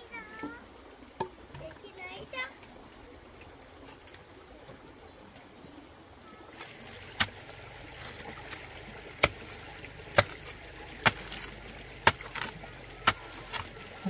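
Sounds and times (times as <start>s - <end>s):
running water: 0.0s - 14.0s.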